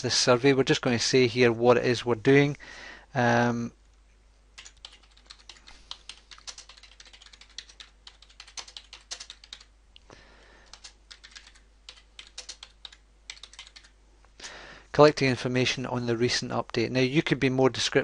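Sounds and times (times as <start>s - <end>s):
computer keyboard typing: 4.6s - 9.7s, 10.6s - 14.0s.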